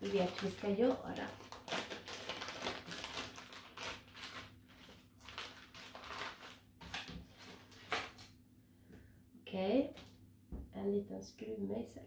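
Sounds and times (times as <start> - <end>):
paper and plastic bag crinkling: 0.0 - 8.3.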